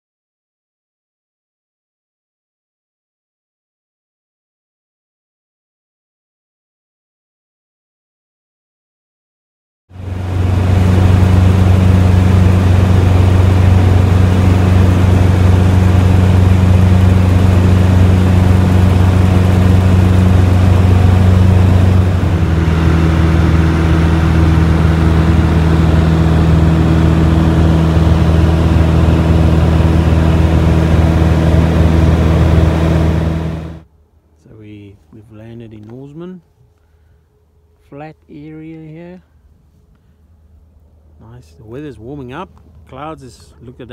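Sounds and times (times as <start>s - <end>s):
light aircraft engine droning: 9.9s - 43.9s.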